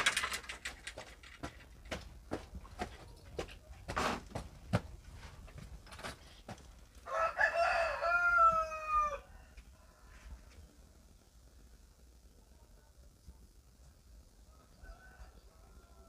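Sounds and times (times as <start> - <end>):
rooster crowing: 7.0 - 10.4, 14.5 - 16.0.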